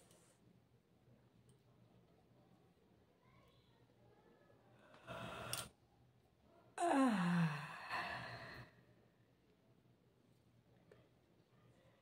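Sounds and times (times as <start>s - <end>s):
woman yawning: 6.8s - 8.6s.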